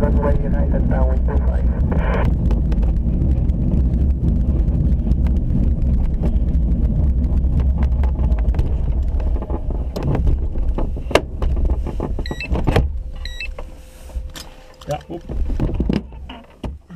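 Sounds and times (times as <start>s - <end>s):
wind on microphone: 0.0s - 14.4s
wheel rolling rumble: 0.0s - 16.9s
airframe knocks and rattles: 2.4s - 13.2s, 14.2s - 16.9s
short electronic beeps: 12.3s - 12.5s, 13.2s - 13.5s.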